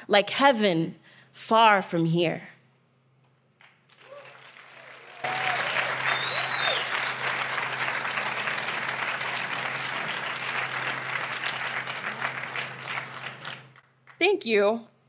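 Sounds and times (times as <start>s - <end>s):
audience applauding: 3.5s - 14.2s.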